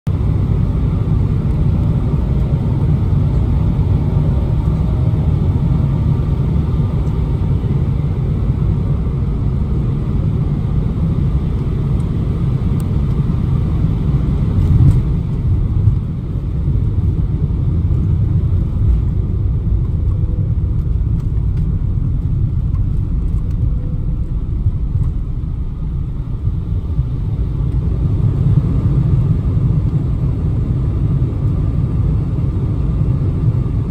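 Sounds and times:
jet engines rumbling: 0:00.1 - 0:33.9
rushing air: 0:20.5 - 0:29.8.

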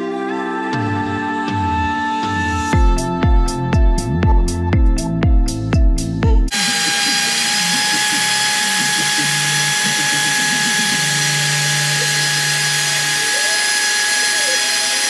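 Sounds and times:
router spindle whining: 0:06.5 - 0:15.0.

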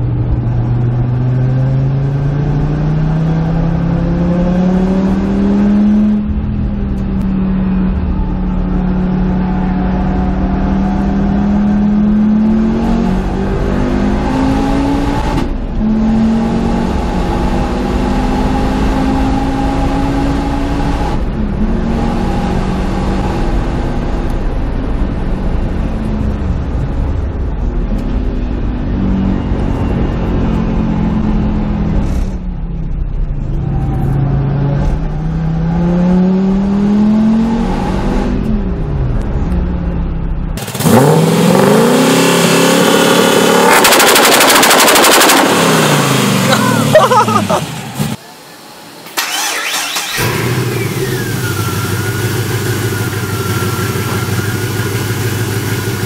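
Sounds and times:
car engine revving through gears: 0:00.3 - 0:24.5, 0:33.4 - 0:38.8, 0:40.6 - 0:48.2, 0:49.2 - 0:56.0
gear changes: 0:43.1 - 0:48.2, 0:49.1 - 0:56.0.

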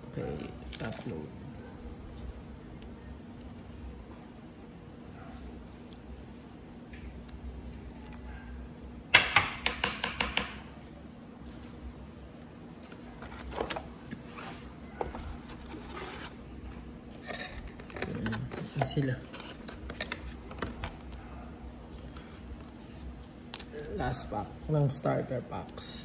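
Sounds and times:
faint steady hum: 0:00.0 - 0:26.0
cards rustling: 0:00.3 - 0:01.2, 0:12.4 - 0:16.4, 0:17.6 - 0:21.3, 0:21.9 - 0:24.1.

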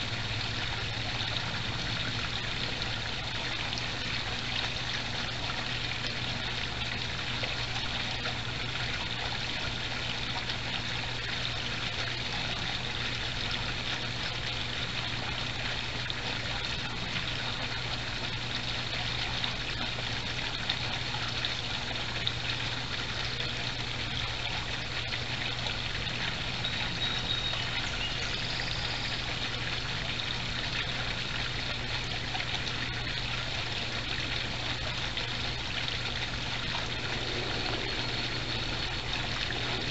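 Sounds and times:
pond water trickling and splashing: 0:00.0 - 0:39.9
faint low hum: 0:34.2 - 0:39.9.

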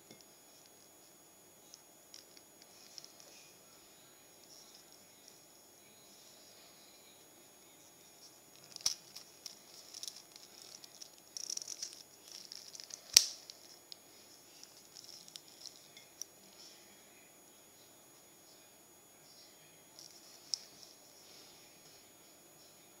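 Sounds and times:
watch strap rubbing and rustling: 0:08.5 - 0:15.9.

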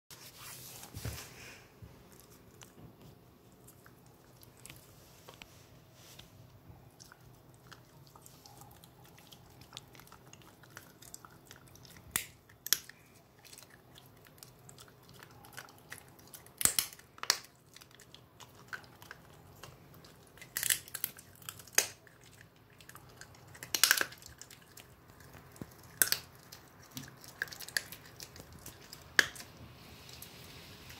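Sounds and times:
dog chewing a bone: 0:06.7 - 0:30.3.

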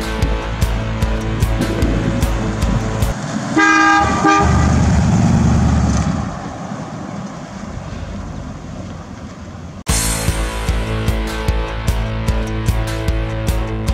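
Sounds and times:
car engine driving away: 0:00.8 - 0:09.9
car horn honking: 0:03.5 - 0:05.4.

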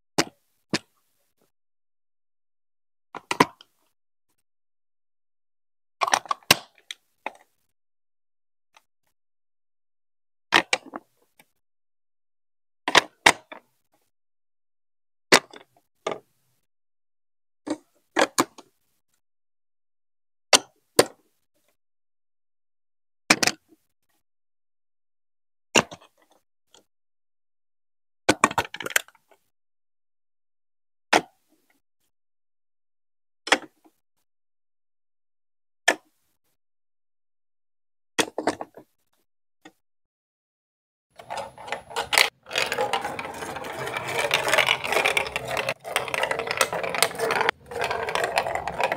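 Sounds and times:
plastic blocks clacking: 0:41.2 - 0:48.9.

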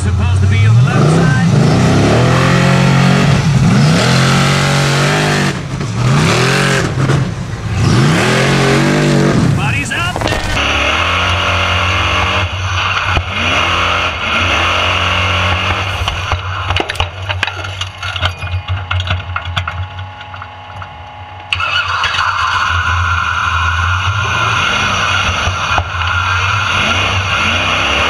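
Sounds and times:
buggy engine revving: 0:00.0 - 0:19.8, 0:21.5 - 0:28.0
sharp clicks and rattles: 0:09.6 - 0:11.0, 0:15.5 - 0:20.9.

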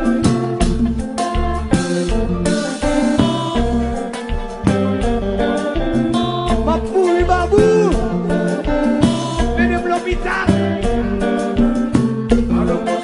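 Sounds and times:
band playing dance beat: 0:00.0 - 0:13.0
man singing: 0:06.6 - 0:08.3, 0:09.5 - 0:10.9, 0:12.4 - 0:13.0.

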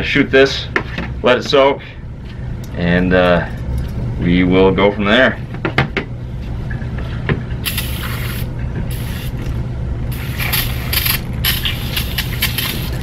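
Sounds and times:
steady low hum: 0:00.0 - 0:13.0
aerosol spray hissing: 0:07.7 - 0:09.4, 0:10.1 - 0:13.0.

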